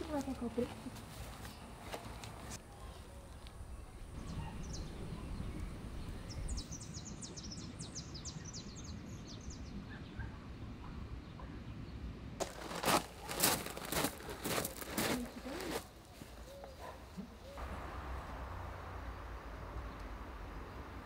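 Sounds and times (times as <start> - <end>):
footsteps on gravel: 0.0 - 2.6, 12.4 - 17.0
bird chirping: 1.4 - 12.0
low outdoor rumble: 17.1 - 21.0.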